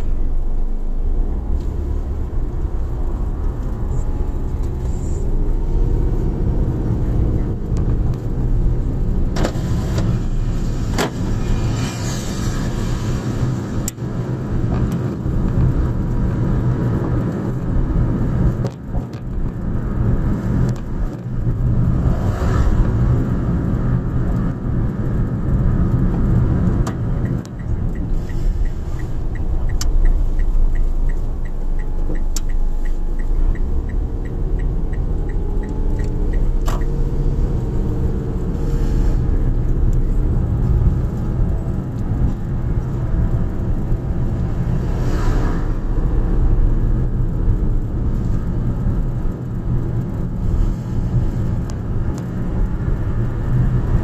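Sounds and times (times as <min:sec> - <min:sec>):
turn signal ticking: 0:00.0 - 0:10.3, 0:13.8 - 0:54.0
car engine and tyre rumble: 0:00.0 - 0:54.0.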